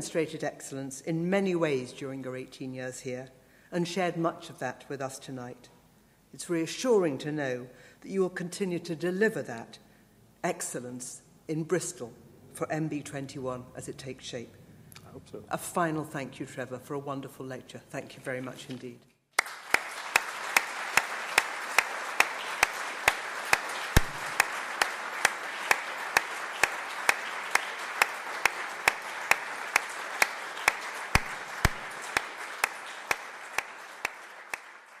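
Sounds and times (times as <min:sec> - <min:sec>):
audience applauding: 0:19.4 - 0:35.0
sharp close claps: 0:19.4 - 0:35.0.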